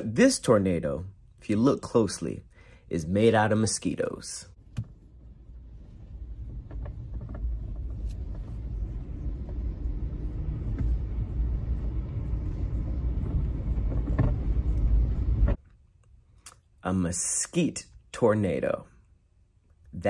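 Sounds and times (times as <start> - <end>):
low rumble: 4.5 - 15.6.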